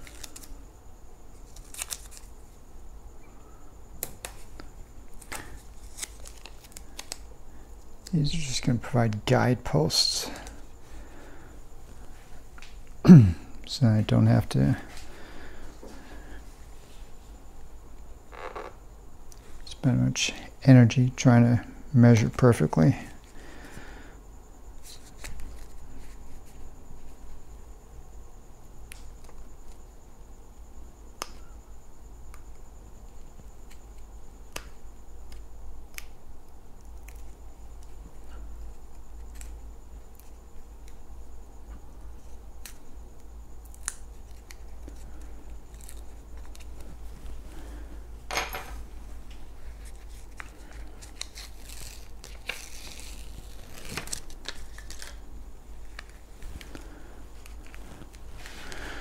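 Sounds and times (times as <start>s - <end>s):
low steady hum: 0.0s - 59.0s
rustling and scraping: 44.3s - 55.2s.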